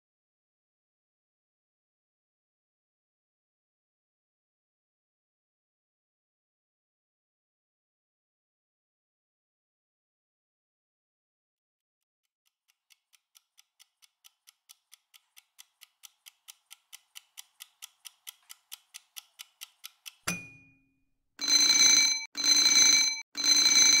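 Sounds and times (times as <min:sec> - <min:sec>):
clock ticking: 0:12.5 - 0:20.7
long ringing alarm beeps: 0:21.4 - 0:24.0.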